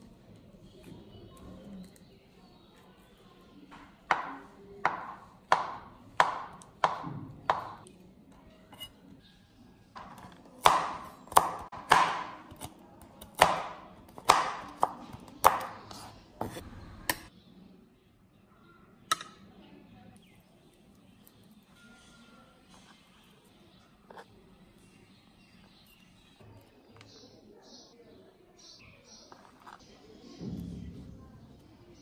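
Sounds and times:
knife chopping on wooden board: 4.1s - 7.8s, 10.0s - 17.3s.

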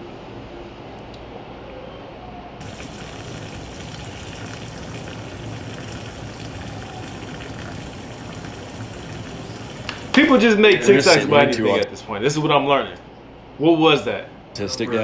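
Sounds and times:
tap water running into bathtub: 2.6s - 10.4s.

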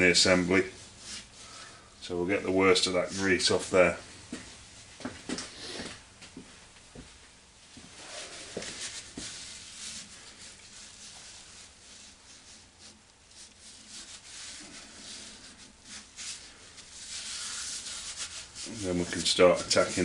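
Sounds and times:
rag wiping metal: 8.0s - 20.0s.

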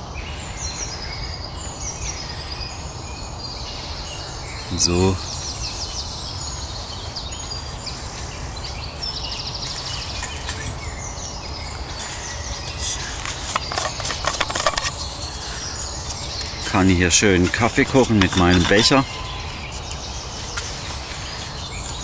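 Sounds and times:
birds chirping: 0.0s - 22.0s
bird trill: 3.8s - 22.0s
metal flask clicks and knocks: 13.4s - 15.0s.

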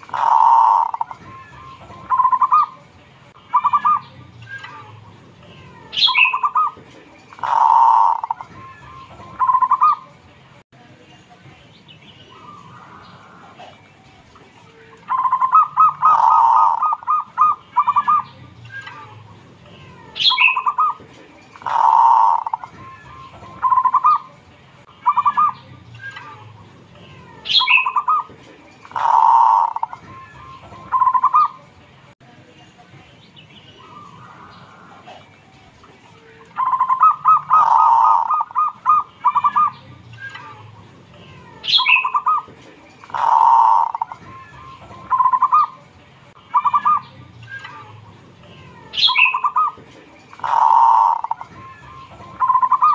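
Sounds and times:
dove cooing: 0.0s - 1.2s, 2.0s - 2.8s, 6.0s - 8.5s, 15.1s - 18.2s, 21.6s - 22.7s, 28.9s - 30.0s, 36.6s - 39.7s, 41.7s - 44.2s, 49.0s - 51.5s, 52.4s - 52.9s.

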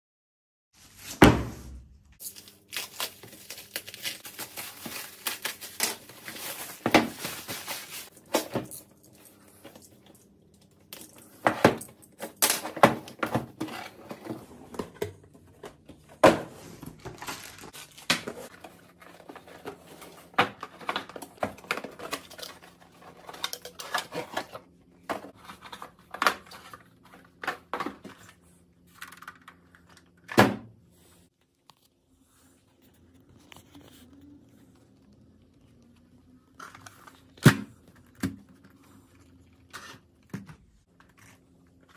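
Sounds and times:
cardboard and plastic rustling: 2.2s - 10.2s, 11.1s - 30.2s.

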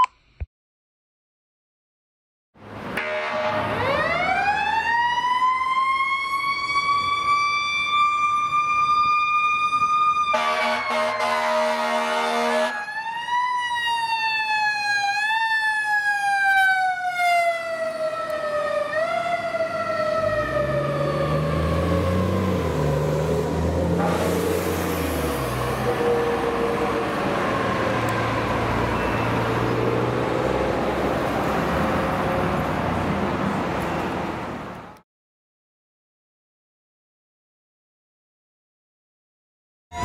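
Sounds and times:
air horn blast: 3.0s - 3.8s, 10.3s - 12.8s, 24.0s - 24.6s
mechanical siren wailing: 3.8s - 22.8s, 25.2s - 29.8s.

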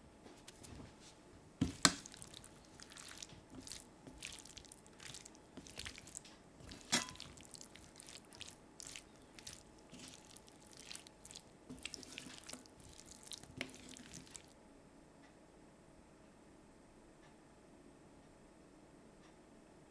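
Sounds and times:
soft squishes of food: 0.3s - 14.6s
metal utensil scraping a frying pan: 6.6s - 7.5s.

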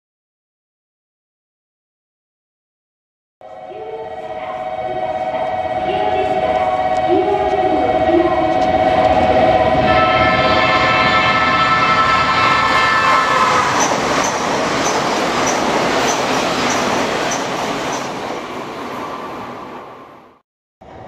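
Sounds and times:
held pitched tone: 3.4s - 18.1s
train wheel and air rush: 13.1s - 21.0s
sharp rhythmic clicks: 13.8s - 18.2s.

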